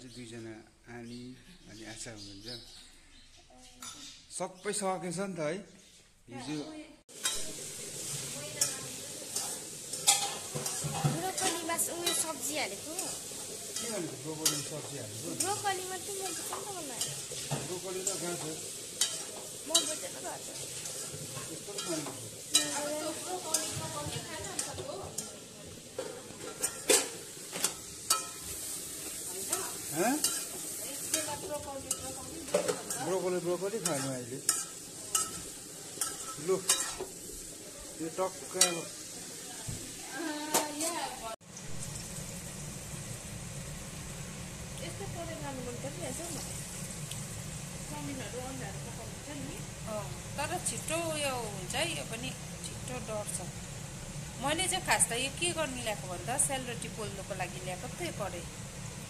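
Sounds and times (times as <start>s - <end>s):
vegetables sizzling in a pan: 6.3s - 59.0s
metal spatula scraping and clinking: 7.2s - 37.2s, 38.5s - 39.1s.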